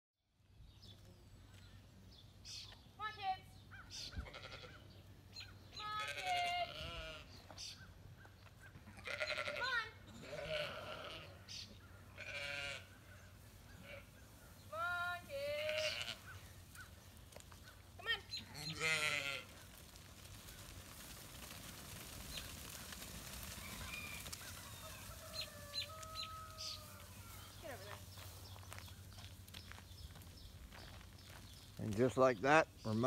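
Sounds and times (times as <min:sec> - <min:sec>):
sheep bleating: 0:04.2 - 0:04.8, 0:05.8 - 0:07.4, 0:08.9 - 0:11.5, 0:12.1 - 0:14.1, 0:15.3 - 0:16.4, 0:18.4 - 0:19.6.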